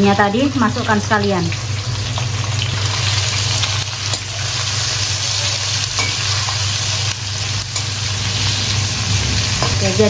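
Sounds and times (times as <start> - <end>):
vegetables sizzling in hot oil: 0.0 - 10.0.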